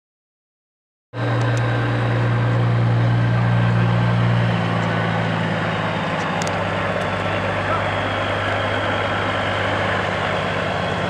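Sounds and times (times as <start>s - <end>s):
truck diesel engine: 1.2s - 11.0s.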